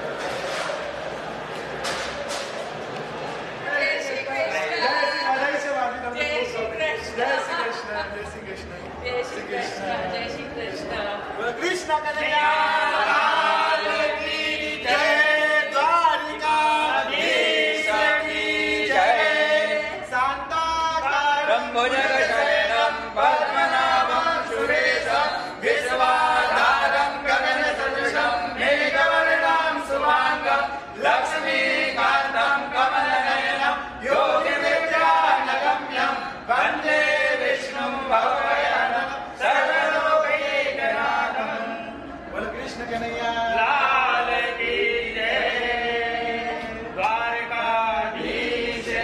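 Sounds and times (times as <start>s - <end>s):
group singing a hymn: 12.1s - 49.0s.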